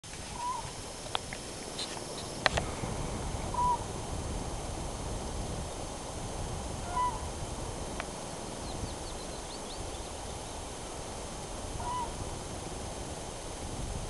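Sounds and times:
steady low outdoor noise: 0.0 - 14.0
faint high bird chirps: 0.3 - 0.7, 3.5 - 3.9, 8.5 - 10.6
short animal calls: 0.3 - 0.7, 3.5 - 3.9, 6.8 - 7.3, 11.8 - 12.2.

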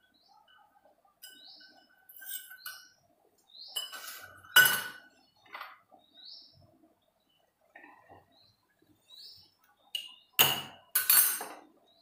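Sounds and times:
bird chirping: 0.0 - 10.6
steel utensils clinking: 3.8 - 5.0.

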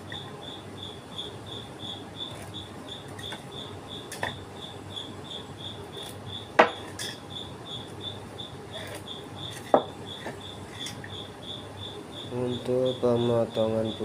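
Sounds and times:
cricket chirping: 0.0 - 14.0
knocks on wooden workbench: 9.7 - 9.9.

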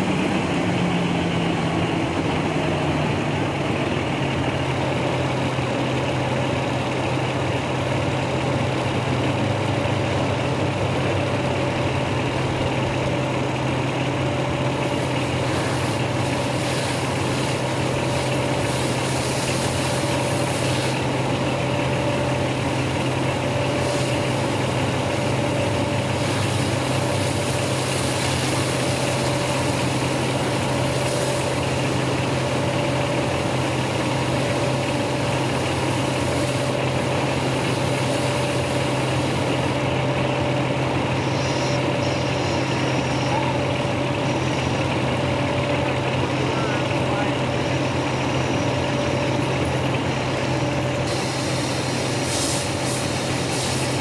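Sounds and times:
fire engine motor humming: 0.0 - 54.0
hiss: 14.7 - 39.8, 41.1 - 43.6, 51.1 - 54.0.

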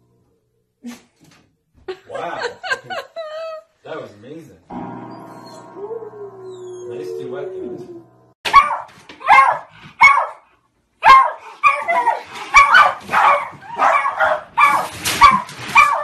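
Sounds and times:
dog barking: 8.5 - 16.0.

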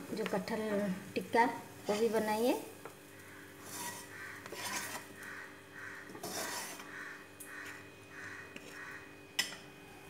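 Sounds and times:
plastic spatula scraping pan: 3.6 - 5.2, 6.2 - 7.0.

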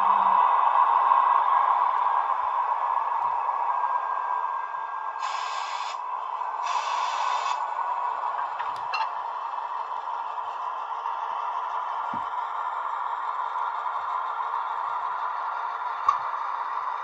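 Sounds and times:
model train running: 0.0 - 17.0
short hisses: 5.2 - 6.0, 6.6 - 7.6.

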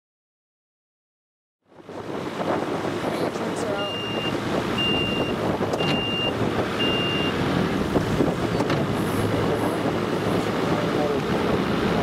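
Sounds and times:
outboard motors running: 1.6 - 12.0
high electronic beep: 3.8 - 7.4.

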